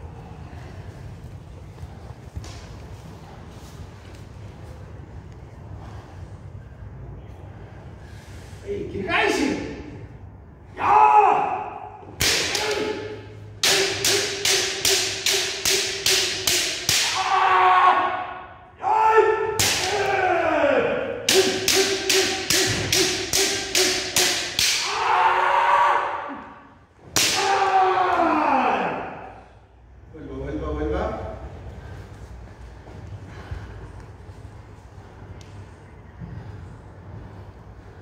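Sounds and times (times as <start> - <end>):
bamboo sword strikes: 12.2 - 17.4, 19.6 - 20.2, 21.3 - 25.0, 27.1 - 27.8.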